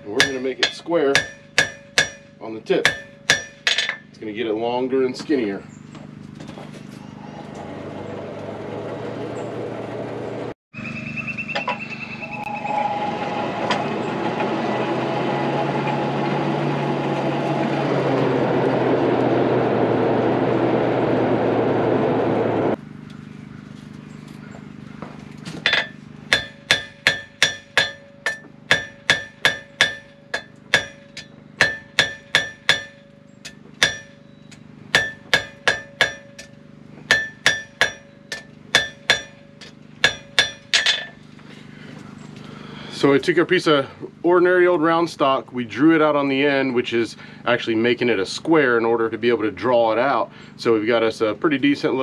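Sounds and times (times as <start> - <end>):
hammer striking steel on anvil: 0.0 - 4.1, 25.6 - 41.2
hand-cranked forge blower whirring: 5.7 - 10.6, 12.6 - 22.8, 24.3 - 43.1.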